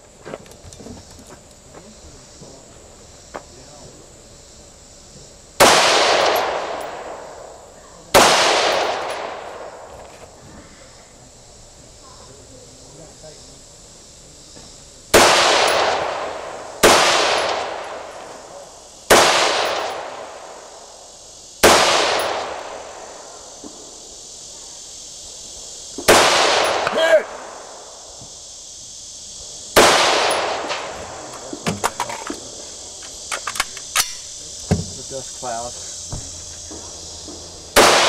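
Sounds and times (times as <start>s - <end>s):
rifle shots echoing: 5.6s - 9.9s, 15.1s - 21.0s, 21.6s - 23.9s, 26.0s - 28.0s, 29.8s - 32.6s, 37.7s - 38.0s.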